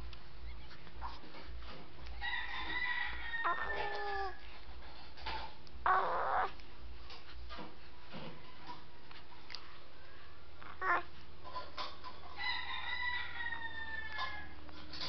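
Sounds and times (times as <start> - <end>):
rooster crowing: 2.2 - 4.4, 12.3 - 14.6.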